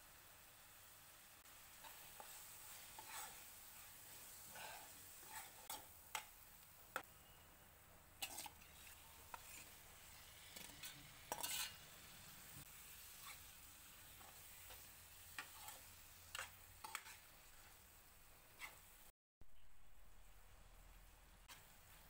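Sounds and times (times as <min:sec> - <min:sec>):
light sizzling: 0:00.0 - 0:19.1, 0:19.9 - 0:22.0
spatula scraping a pan: 0:01.7 - 0:06.4, 0:08.2 - 0:12.1, 0:13.0 - 0:17.8, 0:18.5 - 0:19.0, 0:21.5 - 0:22.0
spoon scraping a steel bowl: 0:03.0 - 0:03.4, 0:05.2 - 0:06.3, 0:08.2 - 0:09.8, 0:10.6 - 0:11.8.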